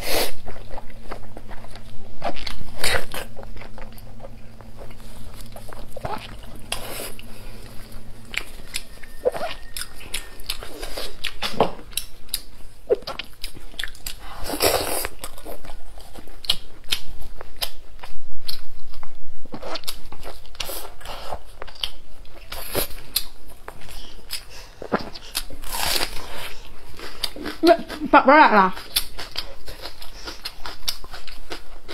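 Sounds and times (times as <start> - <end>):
person chewing meat: 0.0 - 28.1, 28.8 - 31.9.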